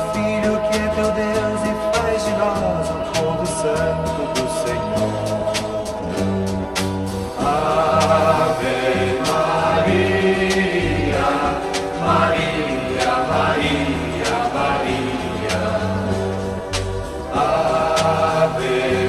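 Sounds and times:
bass: 0.0 - 19.0
hymn singing: 0.0 - 19.0
keyboard chords: 0.0 - 19.0
light beat: 0.0 - 19.0.

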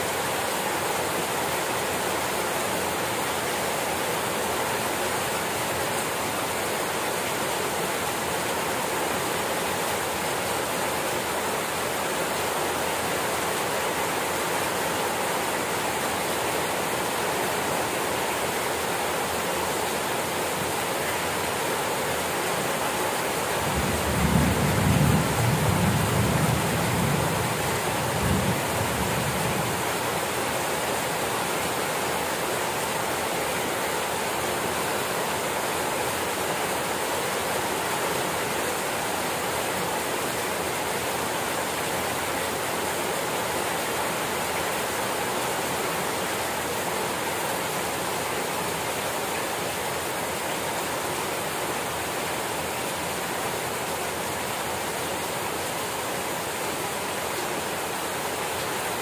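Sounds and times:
steady rain hissing: 0.0 - 59.0.

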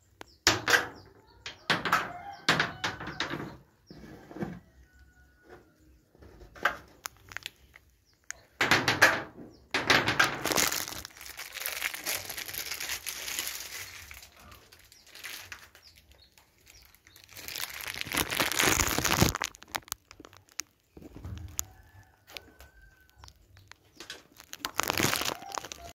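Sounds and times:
rustling and scraping: 2.6 - 7.9, 8.8 - 25.9.

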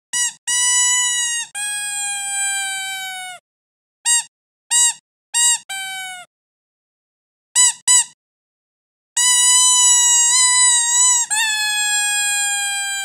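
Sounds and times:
squeaky dog toy squeaking: 0.1 - 3.4, 4.1 - 6.3, 7.6 - 8.2, 9.2 - 13.0.

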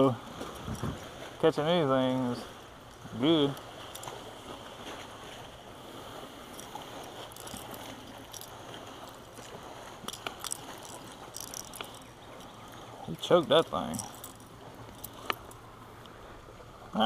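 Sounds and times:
fishing hooks clicking and rattling: 2.9 - 4.3, 6.5 - 12.6, 13.6 - 15.6.

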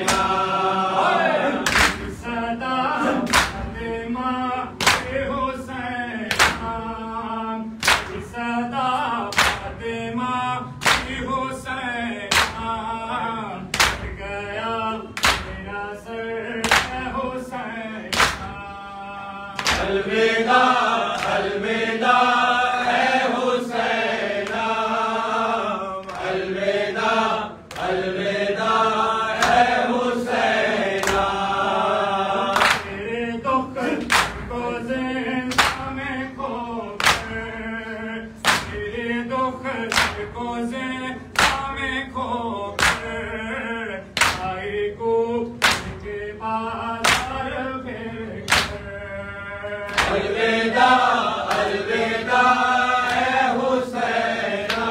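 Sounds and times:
hands slapping chests: 0.0 - 0.4, 1.6 - 2.2, 3.2 - 3.7, 4.8 - 5.2, 6.3 - 6.7, 7.8 - 8.2, 9.3 - 9.7, 10.8 - 11.2, 12.3 - 12.7, 13.7 - 14.1, 15.2 - 15.6, 16.6 - 17.0, 18.1 - 18.6, 19.6 - 20.0, 21.1 - 21.5, 29.4 - 29.7, 30.9 - 31.3, 32.5 - 32.9, 33.9 - 34.5, 35.5 - 35.9, 37.0 - 37.4, 38.4 - 38.8, 39.9 - 40.3, 41.4 - 41.7, 42.8 - 43.1, 44.2 - 44.5, 45.6 - 46.0, 47.0 - 47.4, 48.5 - 48.8, 49.9 - 50.3, 51.4 - 51.8, 54.6 - 54.9
men chanting in chorus: 0.0 - 54.9.

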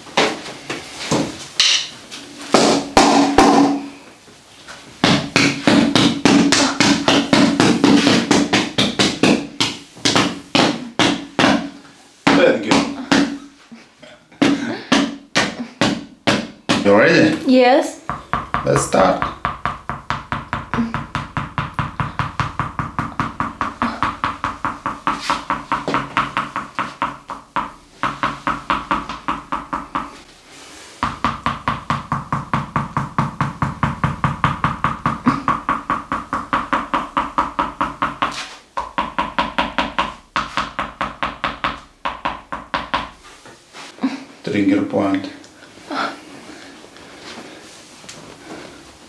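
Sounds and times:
mallet tapping on back: 18.1 - 30.2, 31.0 - 43.2.

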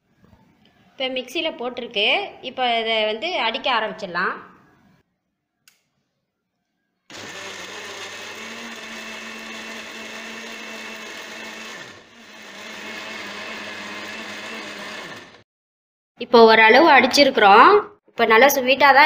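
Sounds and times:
blender motor running: 7.1 - 15.4.

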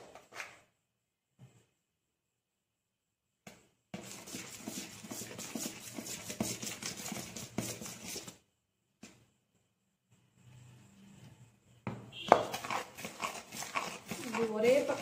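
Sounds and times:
metal spoon stirring flour in bowl: 4.0 - 8.4, 12.2 - 15.0.

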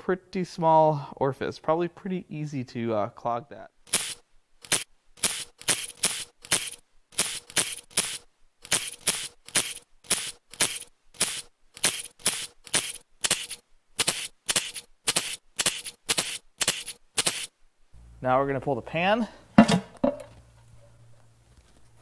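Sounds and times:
impact tool bursts: 3.9 - 17.5.

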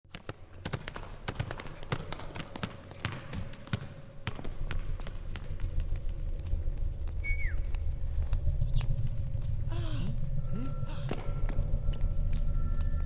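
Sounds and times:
low rumble: 5.7 - 13.0.

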